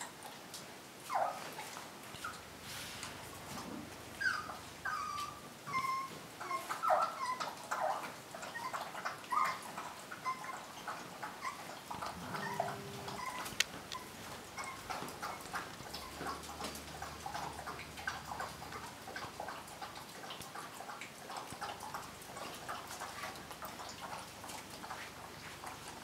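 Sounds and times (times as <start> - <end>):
puppy whimpering and squeaking: 1.1 - 2.4, 4.2 - 16.4.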